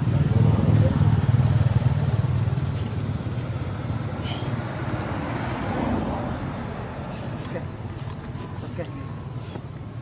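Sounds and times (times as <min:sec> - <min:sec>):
vehicle engine passing: 0:00.0 - 0:09.5.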